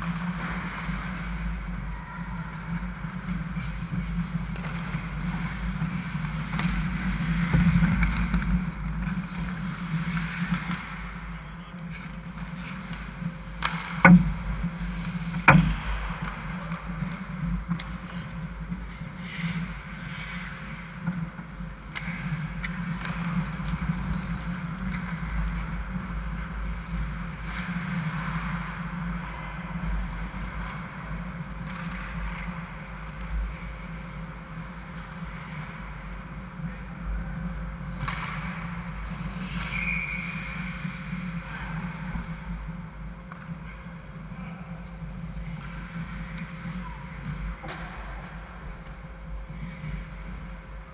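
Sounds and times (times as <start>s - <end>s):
skates scraping on ice: 0.0s - 37.1s, 37.7s - 44.3s
low hum: 0.0s - 50.9s
hockey sticks clattering: 11.8s - 21.3s
sharp knocks: 13.7s - 14.4s, 15.5s - 15.9s.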